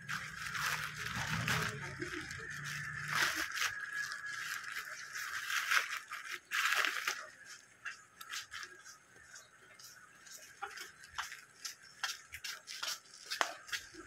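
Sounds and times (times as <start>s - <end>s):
plastic bag rustling: 0.0s - 8.9s.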